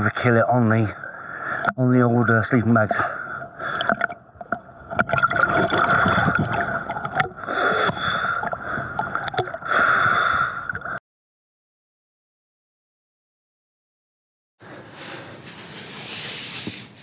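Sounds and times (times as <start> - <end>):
water splashing from swimming strokes: 3.6 - 10.0.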